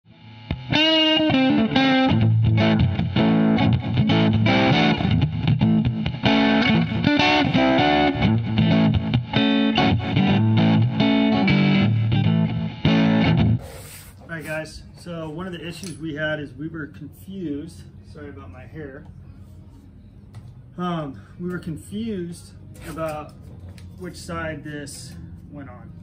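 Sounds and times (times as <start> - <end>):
intro music: 0.1 - 13.6.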